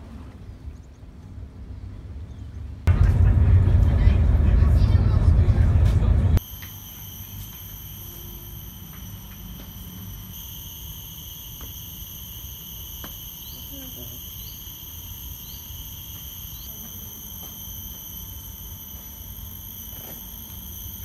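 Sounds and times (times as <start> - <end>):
low rumble: 2.9 - 6.4
insects trilling: 6.4 - 21.0
short rising chirps: 6.4 - 21.0.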